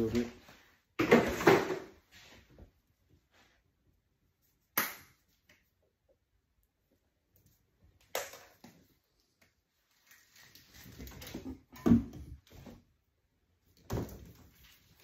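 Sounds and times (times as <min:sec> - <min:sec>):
electrical cables rustling and scraping: 0:08.7 - 0:11.5.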